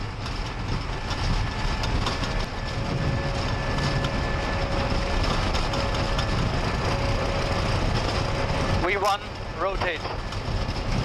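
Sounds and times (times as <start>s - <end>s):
faint steady whine: 0.0s - 11.0s
jet engines at takeoff thrust: 0.0s - 11.0s
wheels rumbling on runway: 0.0s - 11.0s.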